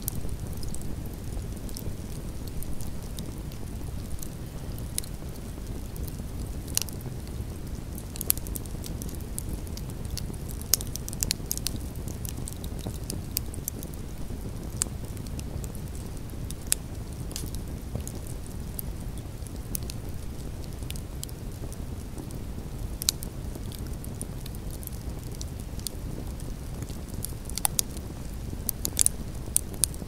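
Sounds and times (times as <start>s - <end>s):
logs crackling and popping: 0.0s - 30.0s
rush of campfire flames: 0.0s - 30.0s.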